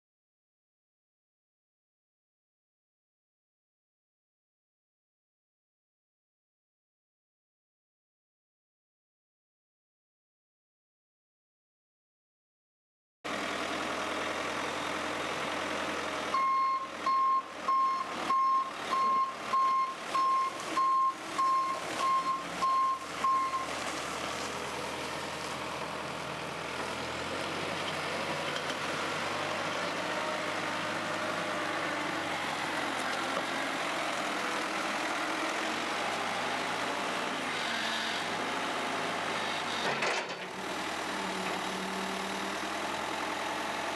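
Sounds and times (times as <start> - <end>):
backhoe diesel engine running: 13.3 - 43.9
reversing alarm beeps: 16.4 - 23.7.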